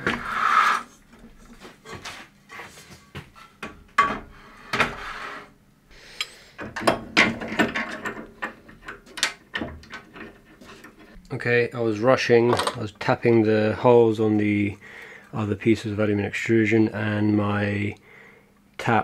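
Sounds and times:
metal knocks and scrapes: 0:02.9 - 0:05.5, 0:06.6 - 0:11.2.

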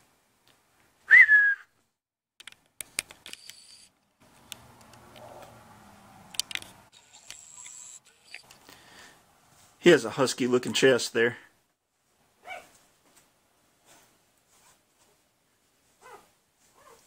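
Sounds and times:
short rising whistle: 0:01.1 - 0:01.7
sharp clicks: 0:02.4 - 0:05.3, 0:06.3 - 0:08.8.

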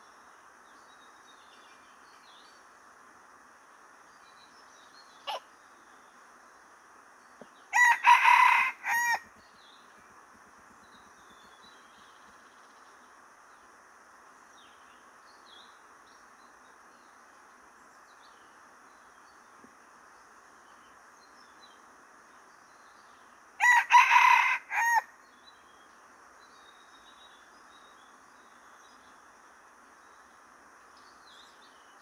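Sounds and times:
faint bird chirps: 0:03.6 - 0:23.8
rooster crowing: 0:07.7 - 0:09.3, 0:23.6 - 0:25.1.

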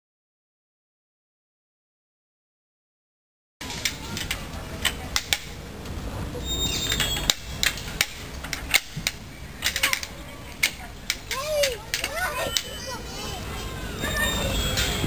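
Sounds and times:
sharp clicks and knocks: 0:06.8 - 0:12.8.

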